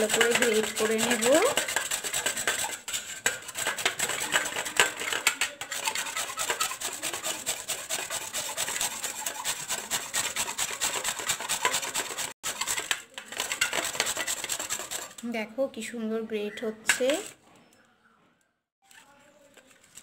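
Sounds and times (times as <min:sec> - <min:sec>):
mango scraping on metal grater: 0:00.0 - 0:15.3.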